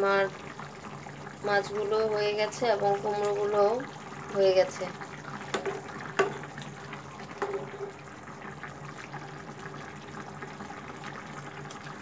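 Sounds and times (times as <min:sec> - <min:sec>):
curry bubbling in a pan: 0:00.0 - 0:12.0
spatula knocking on a pan: 0:05.5 - 0:06.4.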